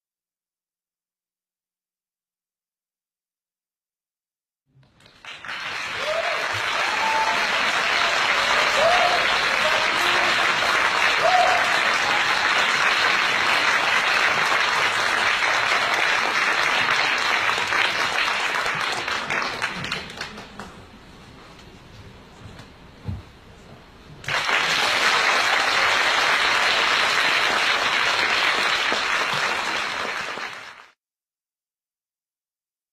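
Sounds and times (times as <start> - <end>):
audience applauding: 4.8 - 20.9, 24.2 - 31.0
crowd shouts: 6.0 - 12.5.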